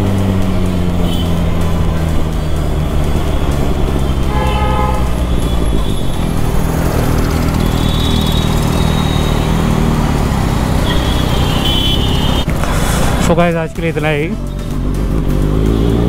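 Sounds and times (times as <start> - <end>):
motorcycle engine running: 0.0 - 16.0
vehicle horn honking: 1.0 - 1.4, 4.2 - 6.1, 7.6 - 9.6, 10.8 - 12.5
higher-pitched horn toot: 4.2 - 6.1, 7.6 - 9.6, 10.8 - 12.5.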